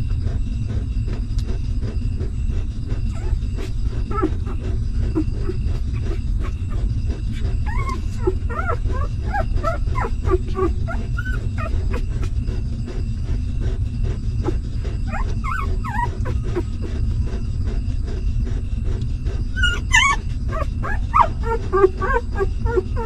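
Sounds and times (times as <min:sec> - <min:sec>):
steady low rumble: 0:00.0 - 0:23.0
puppies whimpering: 0:03.0 - 0:13.4, 0:14.4 - 0:17.4, 0:19.3 - 0:23.0.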